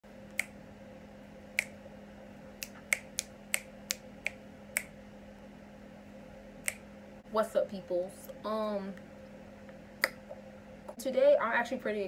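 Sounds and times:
faint steady hum: 0.0 - 12.0
person snapping fingers: 0.3 - 0.6, 1.6 - 1.8, 2.6 - 4.9, 6.6 - 6.8, 10.0 - 10.3.

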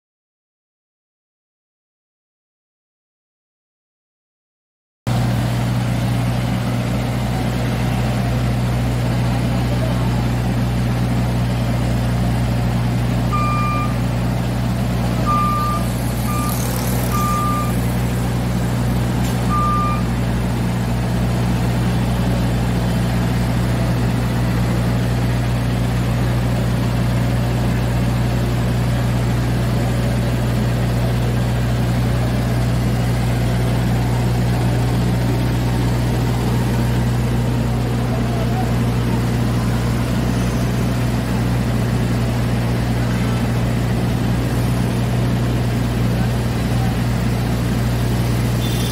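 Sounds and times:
power sweeper running: 5.1 - 48.9
warning beeps: 13.3 - 14.1, 15.2 - 17.9, 19.4 - 20.1.

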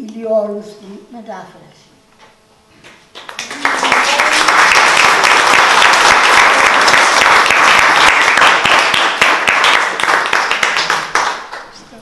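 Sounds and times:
audience applauding: 3.1 - 11.8.

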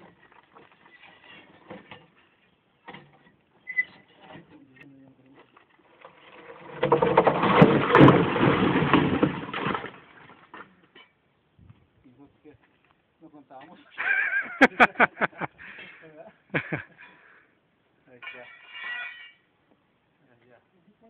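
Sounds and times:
rock block crashing down: 6.3 - 10.7
pry bars scraping stone: 18.2 - 19.5.

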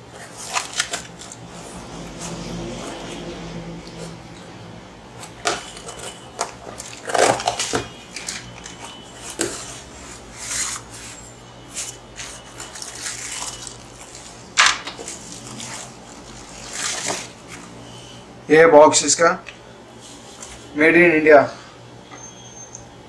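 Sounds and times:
bubble wrap rustling: 0.0 - 3.1, 5.2 - 17.8.

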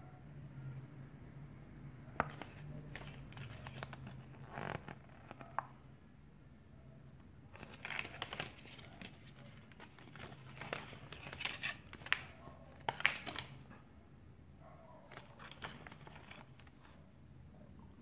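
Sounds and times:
paper rustling and crinkling: 2.2 - 5.7, 7.5 - 13.7, 15.1 - 17.0.

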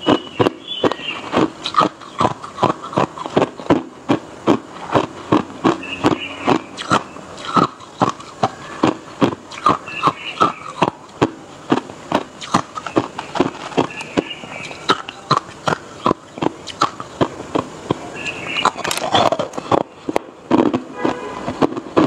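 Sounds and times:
ice being chewed: 0.0 - 22.0.

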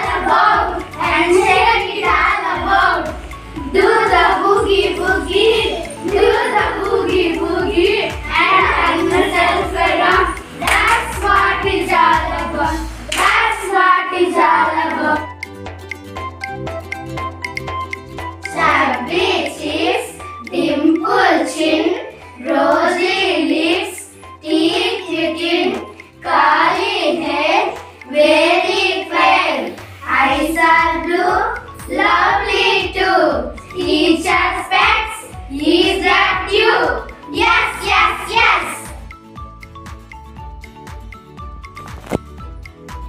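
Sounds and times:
children singing together: 0.0 - 15.4, 18.4 - 39.0
hand claps: 9.1 - 11.9, 13.1 - 13.6.

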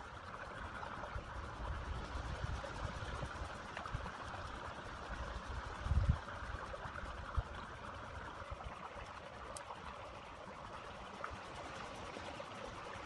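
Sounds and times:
stream trickling: 0.0 - 13.0
faint clicks: 9.0 - 9.9.

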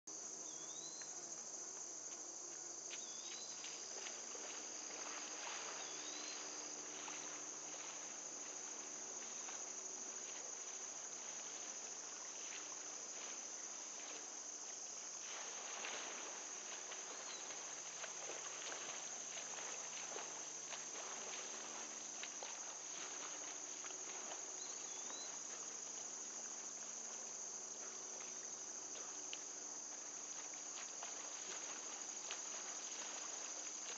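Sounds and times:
high-pitched insect chorus: 0.1 - 33.9.

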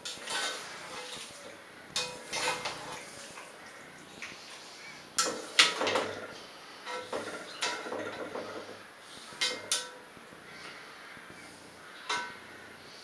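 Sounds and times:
utensil clinking against pot: 2.0 - 2.9, 9.4 - 10.0, 12.1 - 12.4.

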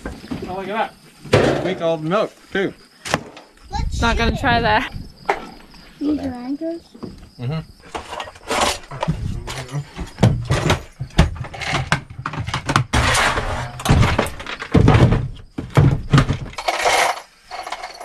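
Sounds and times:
plastic boxes knocking and clattering: 7.9 - 18.0.

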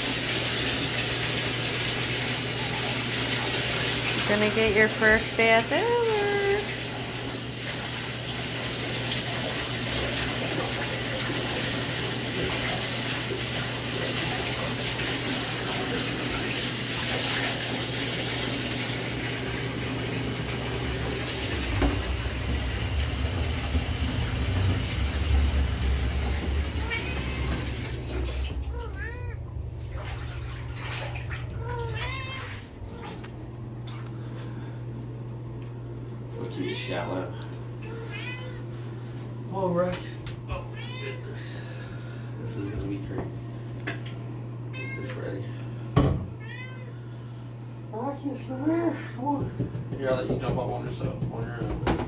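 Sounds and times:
water pouring from bathtub tap: 0.0 - 34.7
cat meowing: 26.8 - 27.6, 28.7 - 29.5, 31.6 - 33.2, 37.8 - 38.6, 40.7 - 41.4, 44.7 - 45.2, 46.4 - 47.0.

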